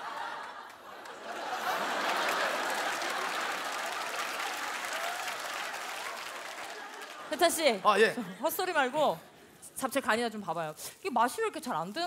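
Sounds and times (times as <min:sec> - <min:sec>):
audience laughing: 0:00.0 - 0:04.8, 0:06.2 - 0:08.4
audience applauding: 0:00.0 - 0:07.9.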